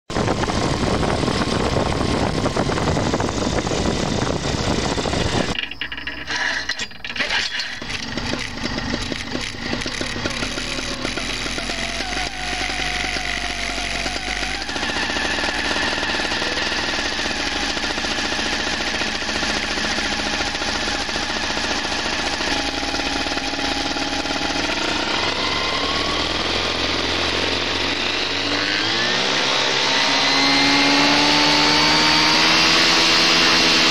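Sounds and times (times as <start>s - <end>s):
paramotor engine chugging: 7.8s - 28.9s.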